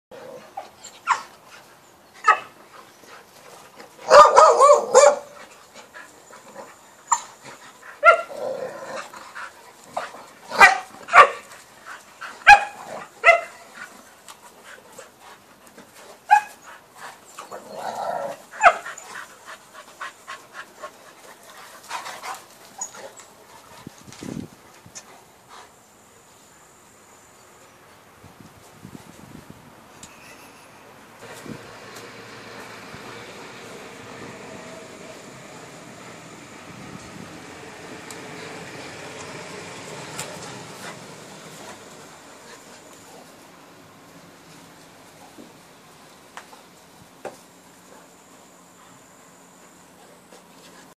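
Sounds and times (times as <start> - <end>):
dogs barking in play: 0.1 - 23.3.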